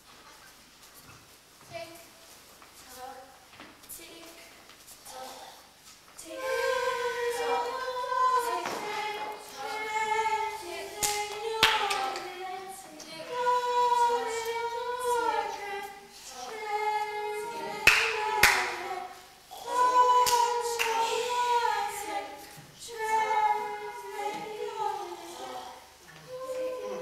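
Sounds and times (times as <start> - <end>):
voices singing held notes: 6.2 - 27.0.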